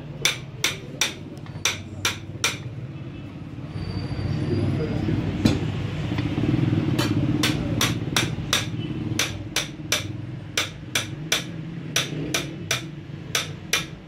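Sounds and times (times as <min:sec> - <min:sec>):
hammer striking metal: 0:00.1 - 0:02.7, 0:07.0 - 0:14.0.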